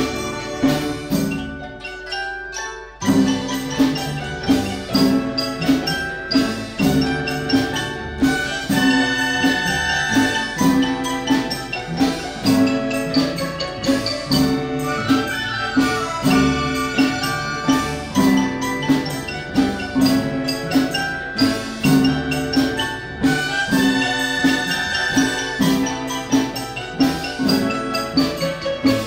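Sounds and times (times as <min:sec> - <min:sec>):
marimba mallet strikes: 0:00.0 - 0:29.0
bowed erhu: 0:08.2 - 0:12.3, 0:14.8 - 0:18.8, 0:23.2 - 0:26.7.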